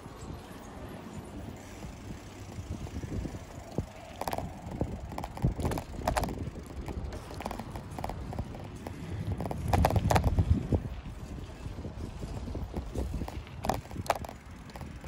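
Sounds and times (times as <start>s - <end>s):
bicycle tyres and frame rumbling: 0.0s - 15.0s
wind on microphone: 0.0s - 15.0s
sharp rattling clicks: 1.4s - 11.2s, 12.1s - 15.0s.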